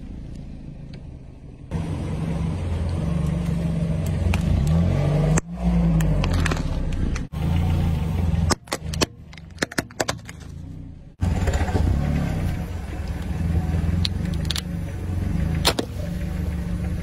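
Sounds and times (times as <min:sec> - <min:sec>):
car engine hum: 0:00.0 - 0:17.0
plastic toys cracking under tyre: 0:14.0 - 0:14.7.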